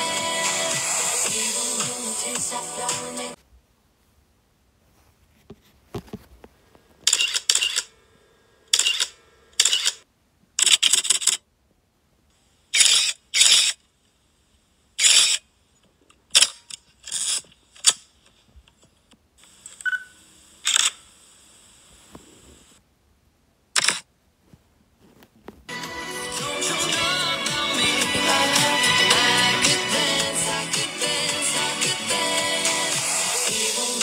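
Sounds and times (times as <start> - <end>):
camera shutter clicks: 7.1 - 7.9, 8.7 - 10.0, 23.8 - 24.1.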